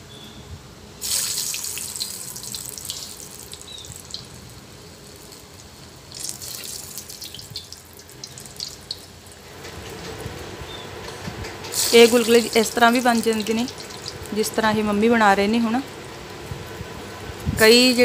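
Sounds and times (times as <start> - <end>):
batter sizzling in hot oil: 1.0 - 10.0, 11.7 - 16.4.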